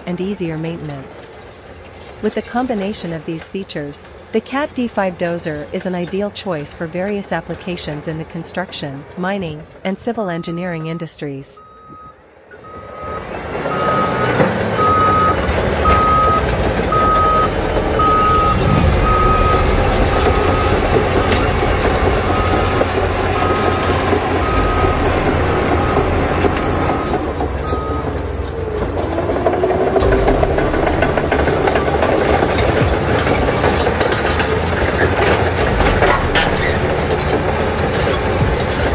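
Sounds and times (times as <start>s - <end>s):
dozer diesel engine running: 0.0s - 38.9s
backup alarm beeping: 9.4s - 28.2s, 30.0s - 32.9s.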